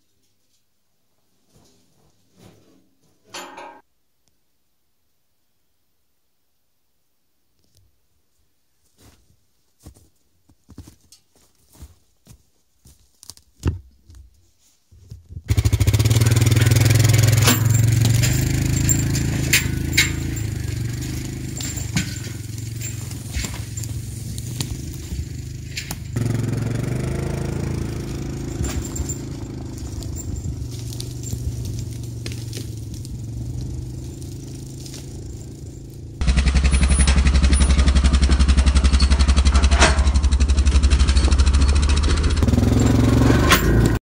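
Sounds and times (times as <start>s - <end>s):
atv engine under load: 15.5s - 44.0s
twigs snapping and rustling: 17.4s - 26.4s, 28.0s - 36.2s.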